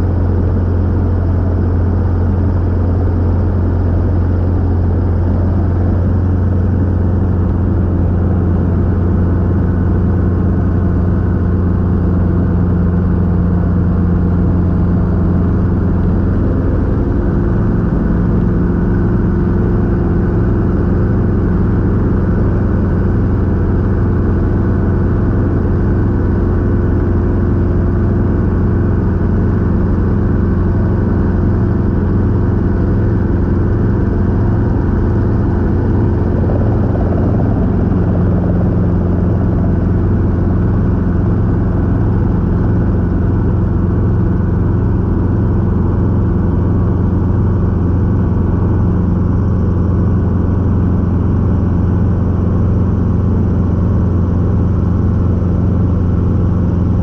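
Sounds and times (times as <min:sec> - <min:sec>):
helicopter engine and rotor drone: 0:00.0 - 0:57.0.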